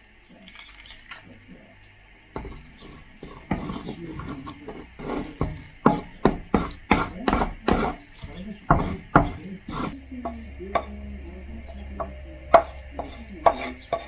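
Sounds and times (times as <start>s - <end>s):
wooden spatula scraping frying pan: 2.4s - 11.0s, 11.6s - 14.0s.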